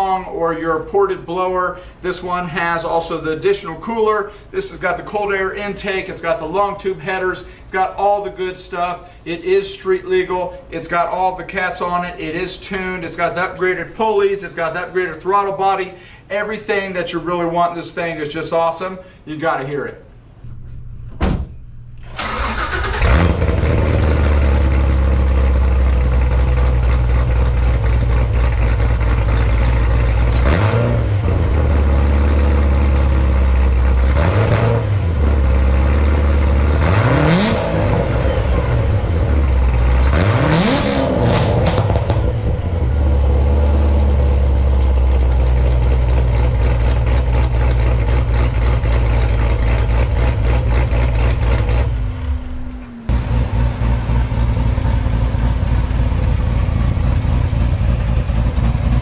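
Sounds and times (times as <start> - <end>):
car engine idling and revving: 22.0 - 59.0.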